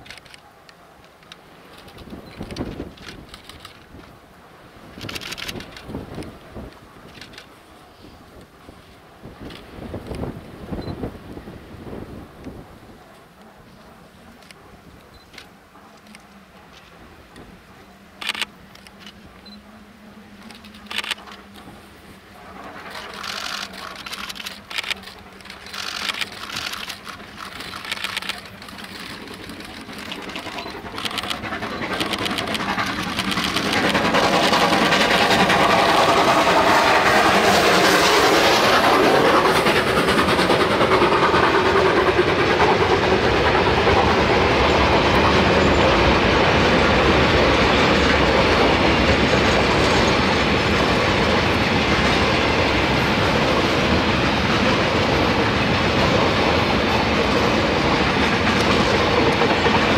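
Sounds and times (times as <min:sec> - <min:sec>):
train wheels rushing on rails: 0:00.0 - 0:59.9
steam train chuffing: 0:13.4 - 0:59.9.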